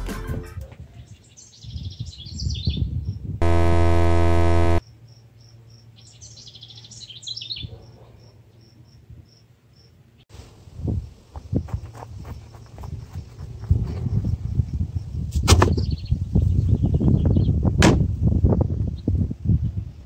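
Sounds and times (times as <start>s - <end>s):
loud steady buzzing tone: 3.4s - 4.8s.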